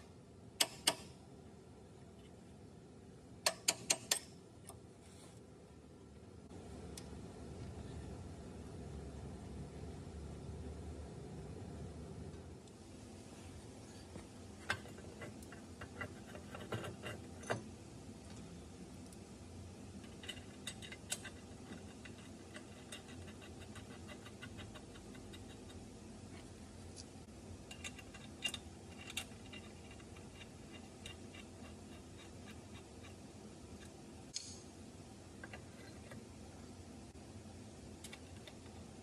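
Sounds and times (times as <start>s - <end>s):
steady low hum: 0.0s - 39.0s
tools clicking on nuts: 0.6s - 1.1s, 3.4s - 4.4s, 27.6s - 33.2s.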